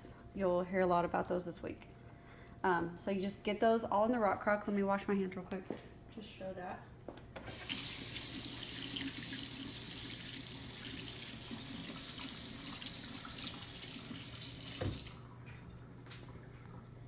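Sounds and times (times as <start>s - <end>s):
faucet running: 7.5s - 15.2s
faucet shutting off knock: 14.6s - 15.1s.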